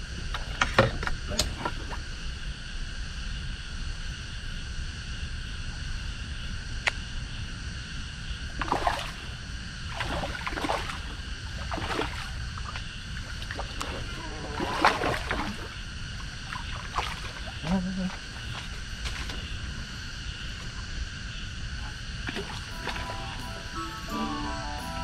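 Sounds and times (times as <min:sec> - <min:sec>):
fish splashing in water: 0:08.6 - 0:19.8, 0:22.2 - 0:23.4
high-pitched drone: 0:22.3 - 0:25.0.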